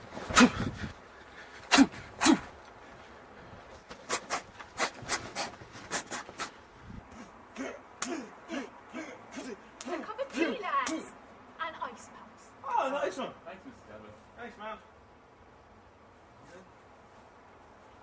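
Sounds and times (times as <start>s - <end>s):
huffing grunts: 0.2s - 0.9s, 1.7s - 2.6s, 4.0s - 10.0s
men shouting and grunting: 7.0s - 11.2s
smacks of blows: 7.1s - 8.3s, 10.8s - 11.1s.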